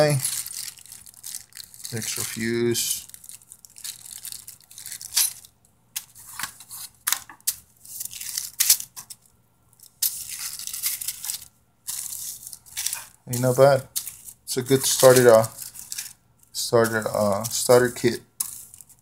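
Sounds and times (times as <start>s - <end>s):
plastic bags crinkling: 0.0s - 6.4s, 7.8s - 19.0s
thin metal strips clinking: 9.9s - 19.0s.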